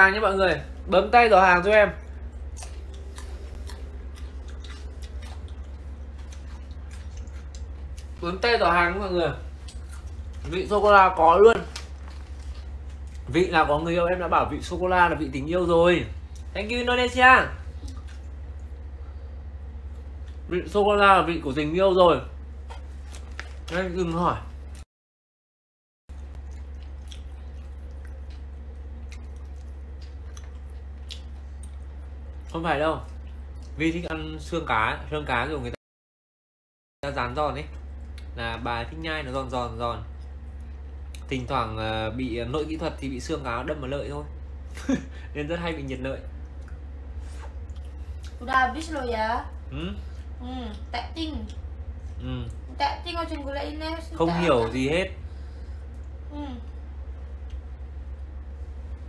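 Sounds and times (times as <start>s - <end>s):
steady low hum: 0.0s - 24.8s, 26.1s - 35.8s, 37.0s - 59.0s
person chewing crunchy food: 2.4s - 8.2s, 9.4s - 10.9s, 11.5s - 13.3s, 22.6s - 23.8s, 26.1s - 33.8s.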